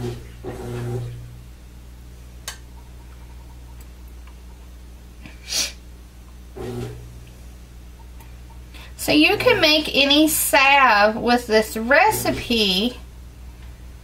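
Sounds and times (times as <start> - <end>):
low steady background hum: 0.0 - 14.0
sharp sniff: 5.4 - 5.8.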